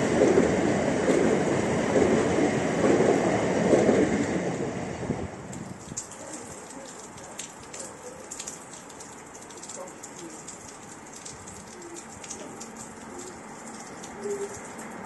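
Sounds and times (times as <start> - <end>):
rain falling: 0.0 - 15.0
bird cooing: 11.7 - 12.1, 14.0 - 14.6.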